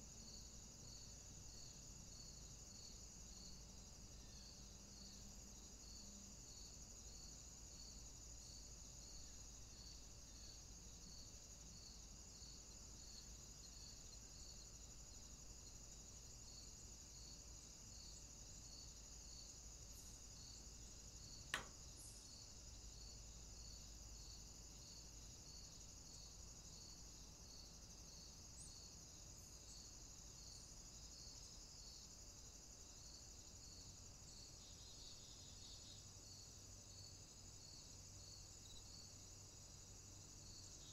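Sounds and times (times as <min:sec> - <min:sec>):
faint high-pitched chirping: 0:21.2 - 0:22.5
sharp click: 0:21.5 - 0:21.8.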